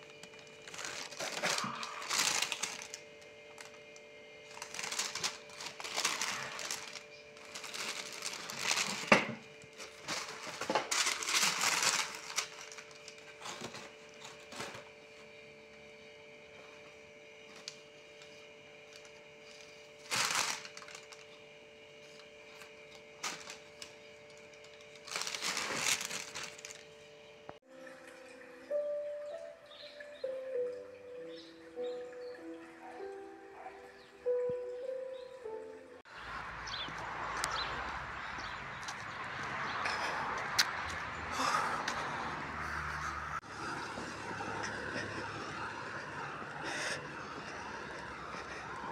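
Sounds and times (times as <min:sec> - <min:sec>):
hands rustling tissue paper and cardboard: 0:00.0 - 0:03.9, 0:04.5 - 0:14.9, 0:17.5 - 0:21.3, 0:22.0 - 0:26.9.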